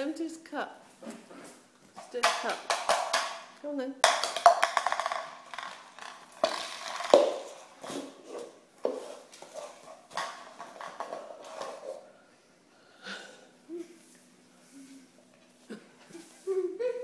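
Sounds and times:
cup clattering on tiled floor: 2.0 - 12.0.

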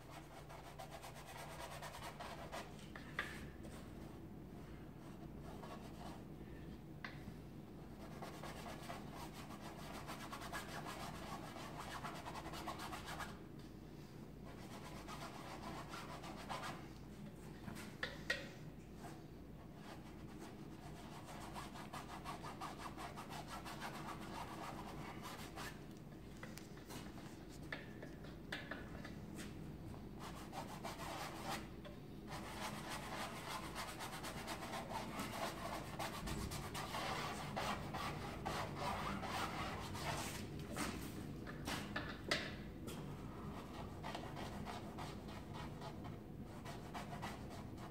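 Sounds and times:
paintbrush scrubbing canvas: 32.3 - 41.1.

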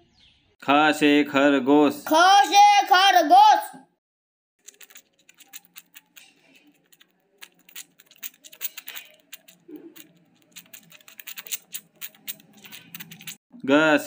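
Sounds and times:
faint rapid clicking and crackling: 4.6 - 13.4.

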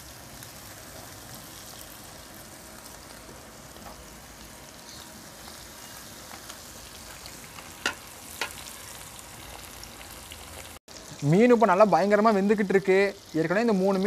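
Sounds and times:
fish sizzling in oil: 0.0 - 14.0.

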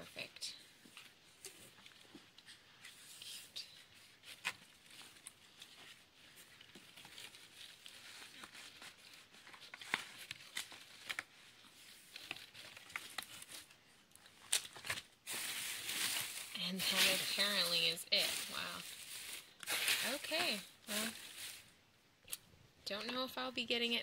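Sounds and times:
book pages turning: 0.8 - 21.7
crinkling shredded paper: 4.0 - 21.7.

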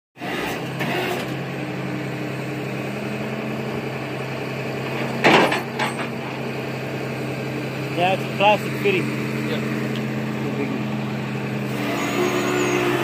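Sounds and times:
vehicle engine idling: 1.3 - 13.0
loud clatter: 4.9 - 6.3.

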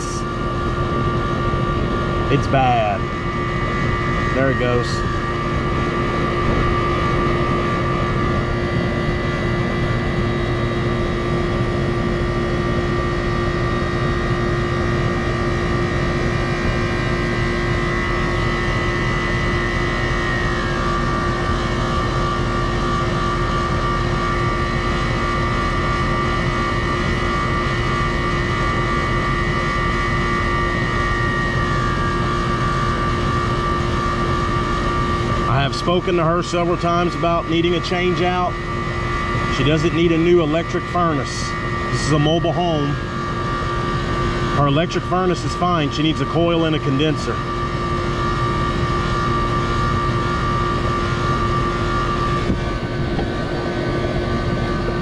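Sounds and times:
air conditioner unit humming: 0.0 - 55.0.

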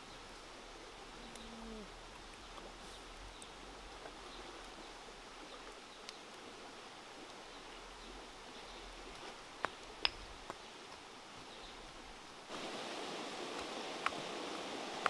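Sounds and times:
faint outdoor hiss: 0.0 - 15.0.

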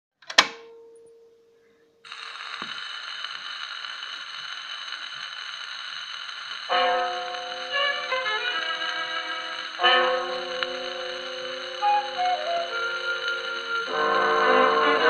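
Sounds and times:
record surface hiss and crackle: 0.6 - 15.0
gramophone music: 6.6 - 15.0.

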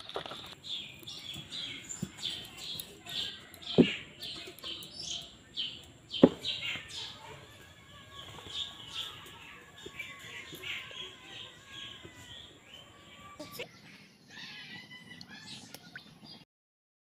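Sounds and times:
sharp knocks: 6.2 - 6.5.

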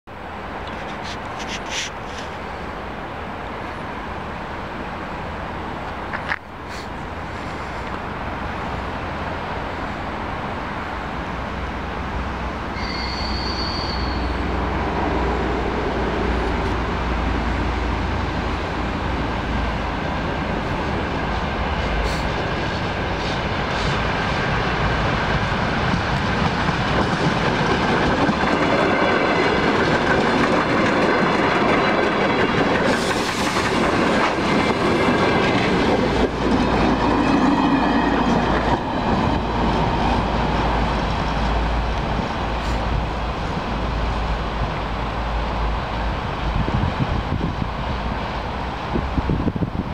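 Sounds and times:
passenger train passing: 0.1 - 49.9
train wheels on track: 0.2 - 49.9
short high-pitched tone: 12.8 - 14.4.

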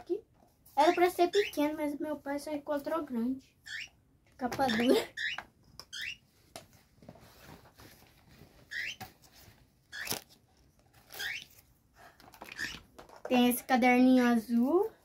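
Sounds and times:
bird chirping: 0.8 - 1.8, 3.6 - 4.0, 4.6 - 6.3, 8.7 - 9.1, 9.9 - 10.2, 11.1 - 11.6, 12.5 - 12.9.

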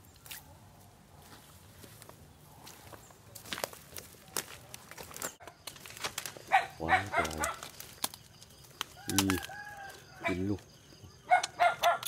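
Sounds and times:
footsteps rustling through grass: 0.0 - 6.5.

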